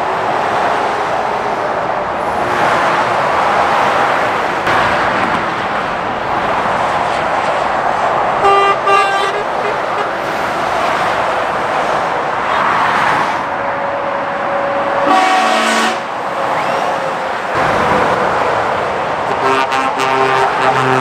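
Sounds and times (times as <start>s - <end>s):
lorries passing at speed: 0.0s - 21.0s
vehicle horn: 8.4s - 10.3s, 15.0s - 16.1s, 19.3s - 21.0s.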